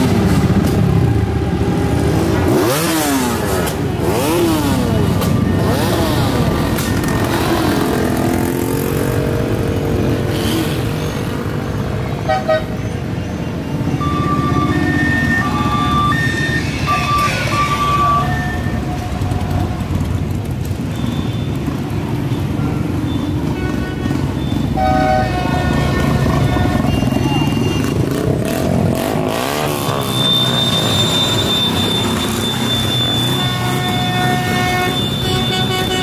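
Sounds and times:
engine revving: 0.0 - 11.5, 25.8 - 34.7
motorcycle engines rumbling: 0.0 - 36.0
horn tooting: 12.1 - 13.1, 13.9 - 20.0, 21.0 - 36.0.

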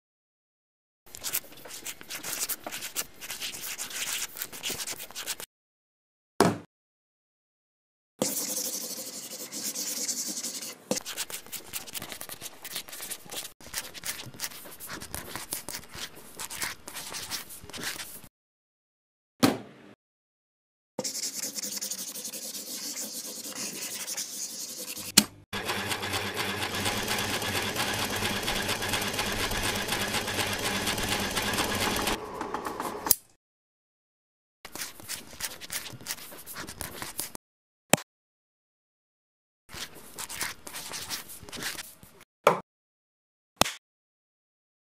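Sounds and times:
rubbing and scratching: 1.1 - 5.5, 8.2 - 18.3, 21.0 - 25.2, 34.7 - 37.4, 39.7 - 42.2
thump: 6.4 - 6.7, 19.4 - 19.7
sewing machine stitching: 25.6 - 33.0.

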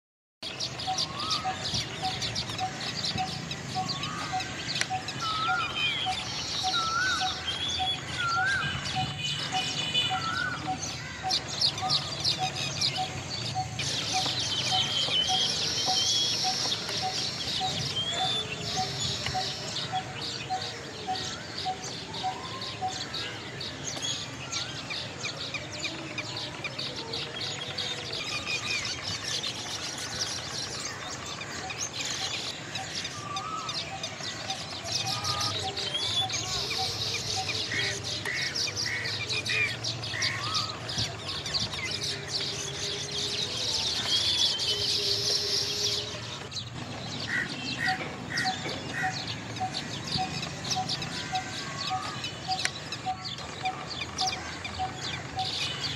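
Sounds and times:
birds chirping: 0.4 - 55.9
evenly spaced bird notes: 0.5 - 23.8
gliding bird calls: 0.6 - 23.4.

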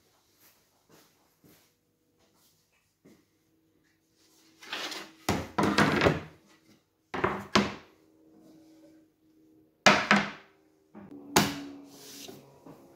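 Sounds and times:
wooden boards knocking: 9.9 - 10.4.

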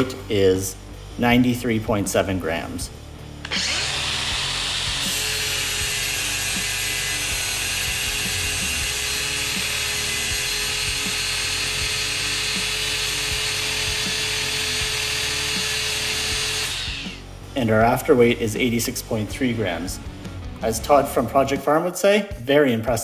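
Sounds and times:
angle grinder grinding steel: 3.4 - 17.3.

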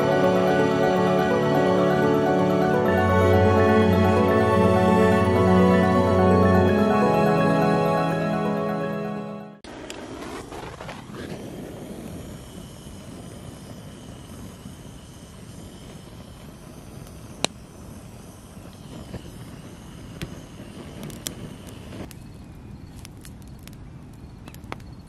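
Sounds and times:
burning wood crackling: 9.7 - 25.0
gas torch hissing: 11.0 - 22.1.

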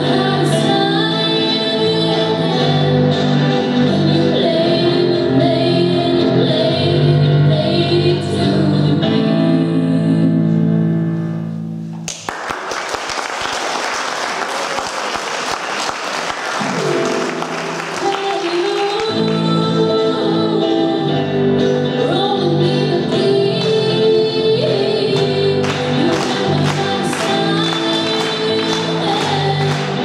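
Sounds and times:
two women singing: 0.0 - 10.6, 18.0 - 30.0
electric bass guitar: 0.0 - 12.0, 19.0 - 30.0
audience applauding: 12.0 - 19.4, 25.2 - 30.0
electric keyboard: 16.6 - 30.0.

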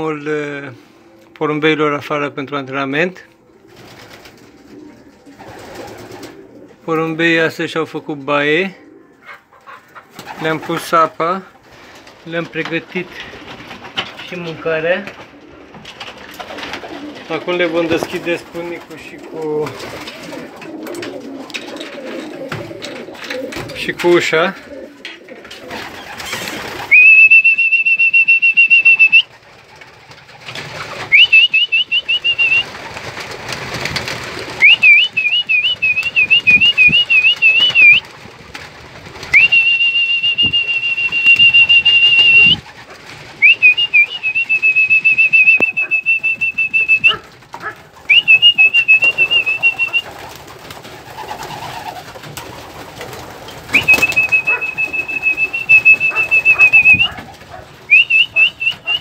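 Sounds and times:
person whistling with trills: 26.9 - 29.3, 31.1 - 32.6, 34.6 - 38.0, 39.4 - 42.6, 43.4 - 47.1, 48.1 - 50.0, 53.7 - 57.1, 57.9 - 59.0.

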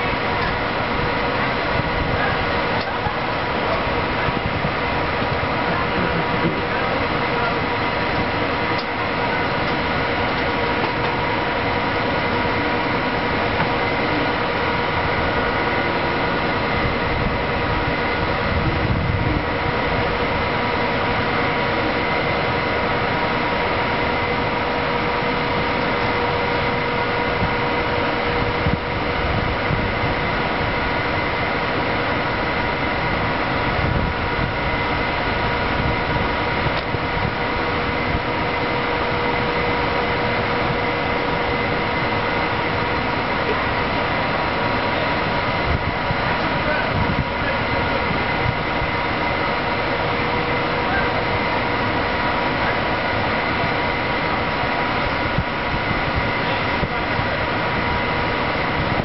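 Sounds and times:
locomotive fans whirring hum: 0.0 - 59.0.

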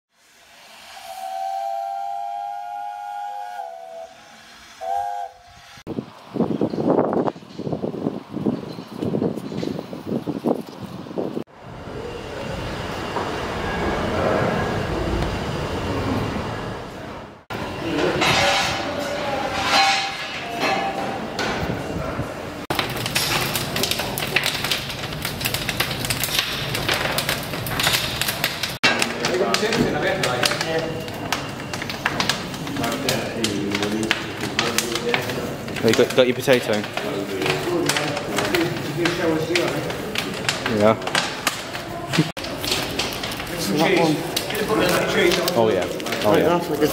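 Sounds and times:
steam hissing: 0.1 - 6.4
steam whistle chord: 0.2 - 5.8.

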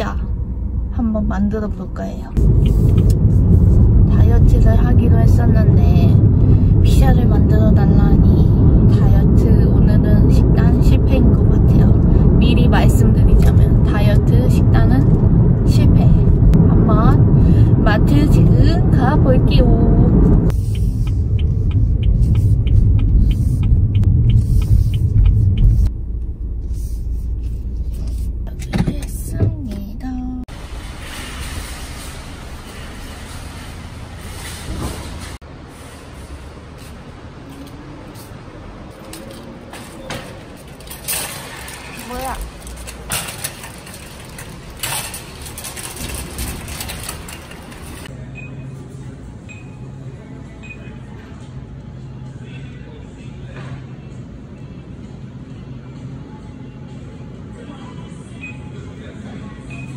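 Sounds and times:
steady low hum: 0.0 - 35.4
car road rumble: 0.0 - 48.3
turn signal ticking: 20.4 - 26.4
cart wheels rumbling on concrete: 39.8 - 48.1
shopping cart rattling: 39.8 - 48.1.

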